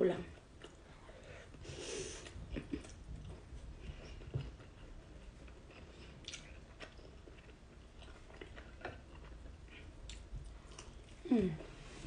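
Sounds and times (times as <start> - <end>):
person chewing food: 0.4 - 11.8.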